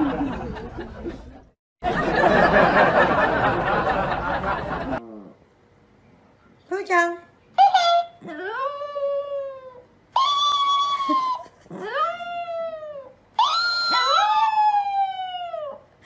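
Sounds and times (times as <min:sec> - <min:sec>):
dog howling: 0:07.9 - 0:15.8.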